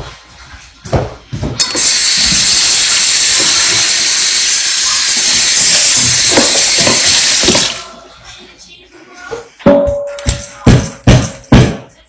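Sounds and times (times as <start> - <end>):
loud steady hiss: 1.7 - 7.8.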